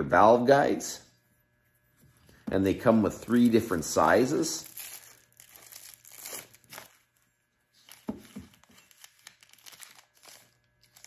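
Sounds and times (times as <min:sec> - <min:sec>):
plastic wrapping crinkling: 0:03.1 - 0:11.0.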